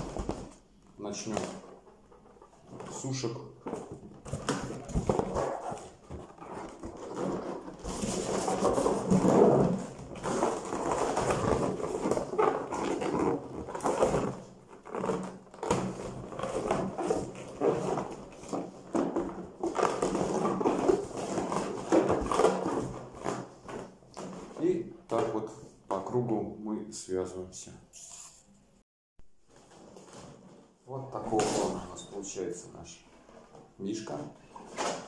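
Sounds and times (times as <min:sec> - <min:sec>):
balloons rubbing and squeaking: 0:00.0 - 0:24.8.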